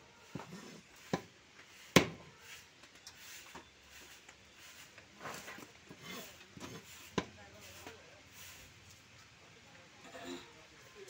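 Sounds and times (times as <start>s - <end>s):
faint market background: 0.0s - 11.0s.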